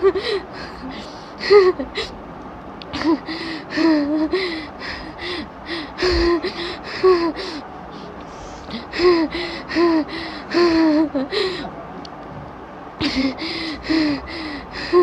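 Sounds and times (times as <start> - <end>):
woman gasping and whimpering: 3.0 - 11.7, 13.0 - 15.0.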